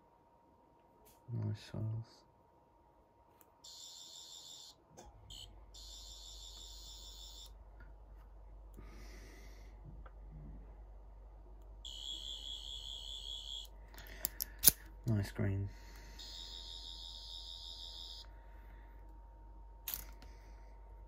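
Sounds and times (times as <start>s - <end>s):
high warbling electronic buzz: 11.9s - 13.7s.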